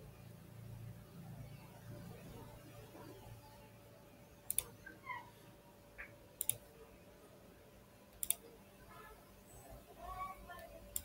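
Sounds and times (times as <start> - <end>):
computer mouse clicking: 4.5 - 4.9, 6.0 - 6.7, 8.1 - 8.5, 10.5 - 11.0.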